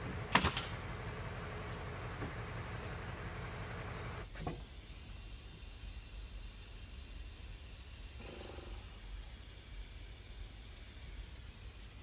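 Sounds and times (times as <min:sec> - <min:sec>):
insects chirring: 0:00.0 - 0:12.0.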